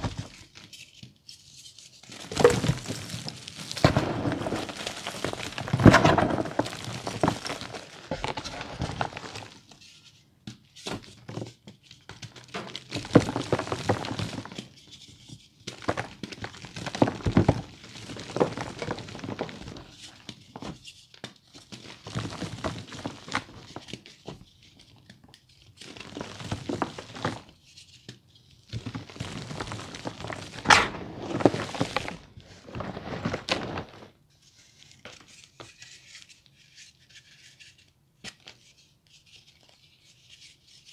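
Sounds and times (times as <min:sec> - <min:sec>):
chalk crunching and crumbling: 0:00.0 - 0:10.2, 0:28.8 - 0:37.8.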